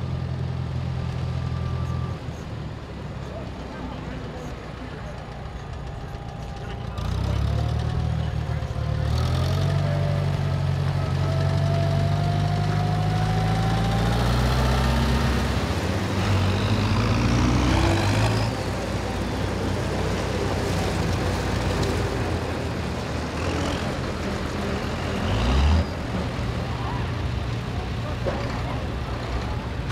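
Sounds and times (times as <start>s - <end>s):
tractor engines humming: 0.0s - 29.9s
engine revving up: 6.4s - 19.5s, 23.1s - 26.4s.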